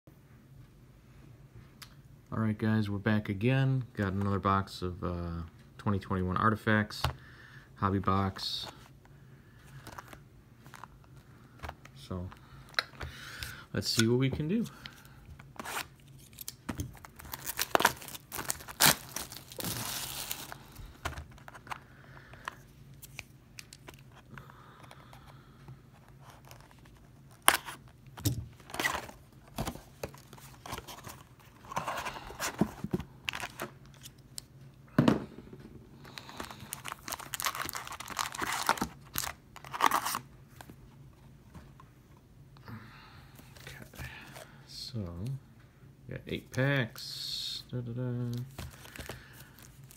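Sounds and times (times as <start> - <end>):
plastic wrap tearing and crinkling: 15.6 - 20.9, 36.1 - 40.2
foil packs rustling: 15.6 - 21.8, 36.0 - 40.2, 48.5 - 49.9.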